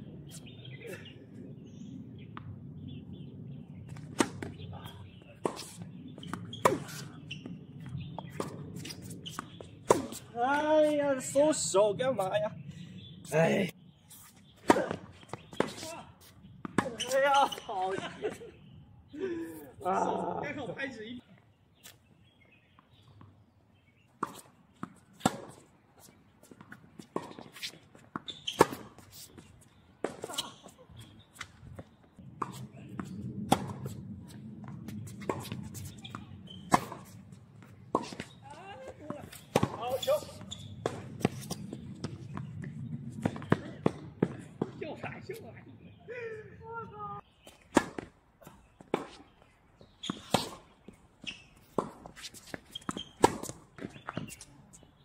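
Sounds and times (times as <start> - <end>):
tennis balls bouncing: 1.7 - 10.6, 14.5 - 17.8, 22.5 - 44.8, 47.2 - 55.0
tennis balls struck by rackets: 3.9 - 10.4, 14.4 - 17.6, 22.6 - 44.8, 47.2 - 54.4
shoe scuffs on court: 3.9 - 11.0, 13.2 - 17.8, 24.2 - 44.7, 47.4 - 54.9
tennis ball hits: 39.1 - 42.5, 51.8 - 54.4.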